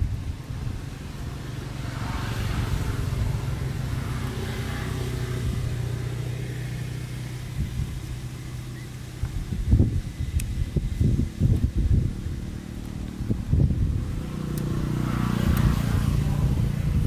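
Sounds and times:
distant vehicle engine hum: 0:00.0 - 0:17.0.

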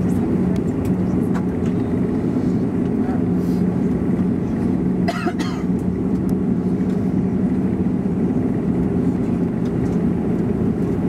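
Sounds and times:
propeller engine drone: 0:00.0 - 0:11.0
person coughing: 0:05.0 - 0:05.8.

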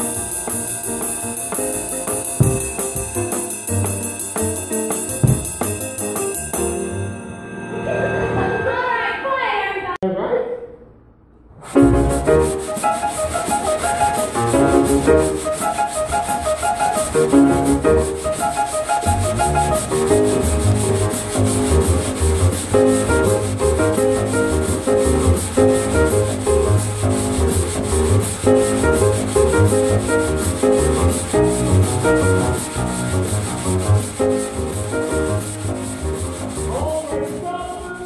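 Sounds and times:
brushes on snare drum: 0:00.0 - 0:06.8, 0:11.6 - 0:38.0
jazz piano: 0:00.0 - 0:07.7, 0:11.6 - 0:38.0
bass line: 0:19.0 - 0:38.0.

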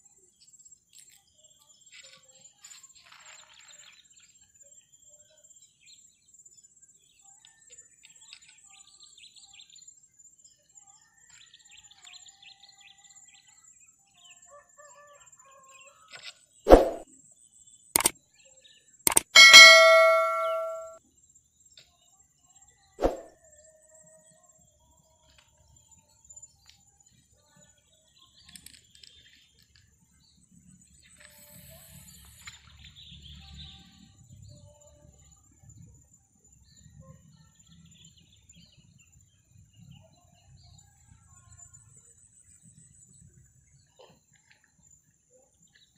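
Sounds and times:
sharp clicks: 0:19.1 - 0:20.9
bell ding: 0:19.1 - 0:21.0.

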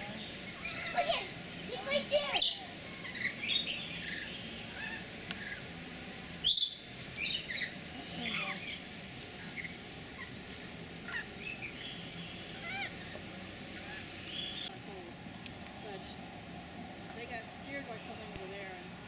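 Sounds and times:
lorikeets chattering and squawking: 0:00.0 - 0:14.7.

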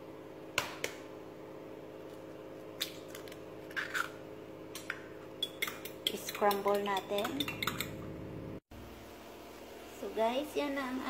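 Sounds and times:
egg cracking: 0:02.8 - 0:08.0.

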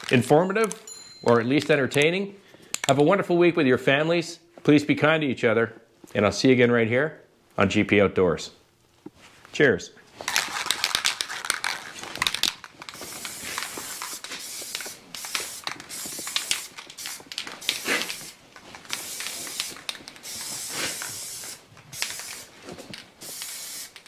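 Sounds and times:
spray can ball rattling: 0:10.2 - 0:24.0
spray paint hissing: 0:10.3 - 0:24.0.

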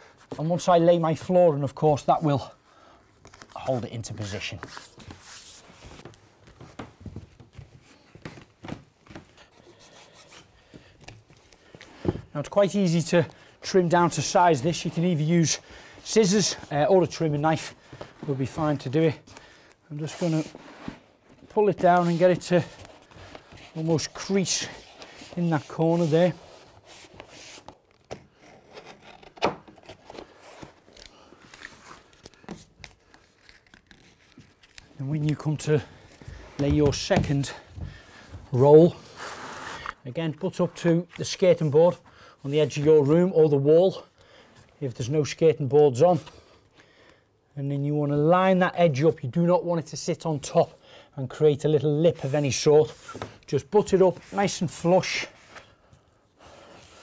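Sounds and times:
foam underlay rustling and scuffing: 0:03.4 - 0:10.5, 0:20.0 - 0:27.9, 0:52.0 - 0:55.9
sheet rustling and scraping: 0:20.0 - 0:27.9.

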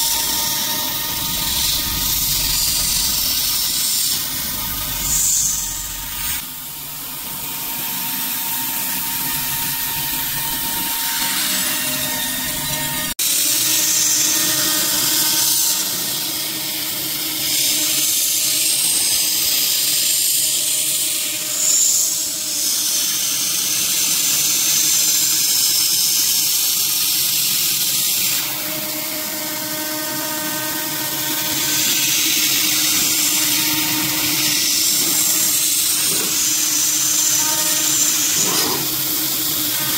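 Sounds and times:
air nozzle hissing: 0:00.0 - 0:06.4, 0:31.7 - 0:39.9
cnc spindle cutting metal: 0:00.0 - 0:39.9.

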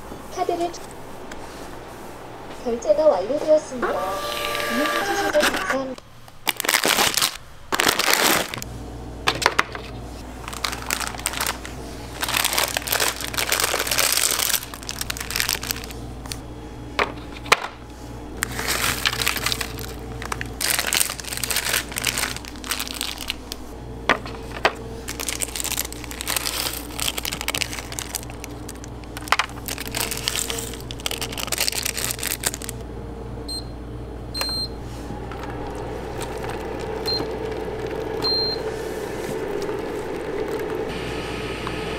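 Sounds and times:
steady low hum: 0:00.0 - 0:06.5, 0:08.5 - 0:41.9
plastic packet crinkling: 0:06.3 - 0:08.7, 0:10.3 - 0:16.4, 0:18.4 - 0:23.7, 0:24.4 - 0:32.8, 0:35.3 - 0:38.2, 0:39.3 - 0:40.9.

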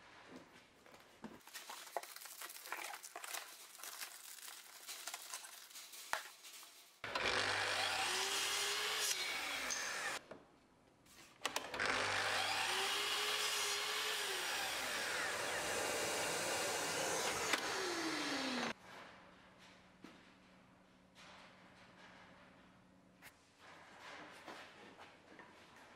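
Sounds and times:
saw cutting wooden rod: 0:07.0 - 0:10.2, 0:11.6 - 0:18.8
mitre saw motor whining: 0:07.1 - 0:10.2, 0:11.5 - 0:18.7.

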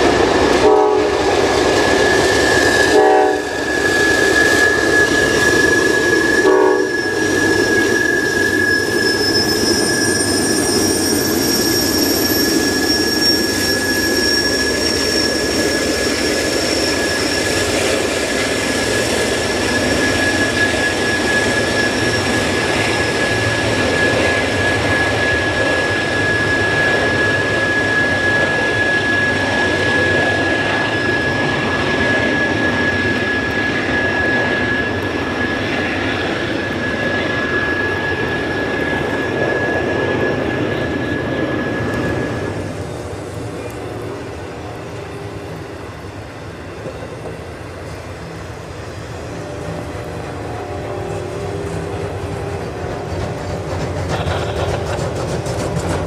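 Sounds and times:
train cars rumbling on rails: 0:00.0 - 0:56.0
train horn: 0:00.5 - 0:01.6, 0:02.8 - 0:03.8, 0:06.3 - 0:07.2, 0:49.2 - 0:53.4
high-pitched wheel squeal: 0:01.8 - 0:43.0.

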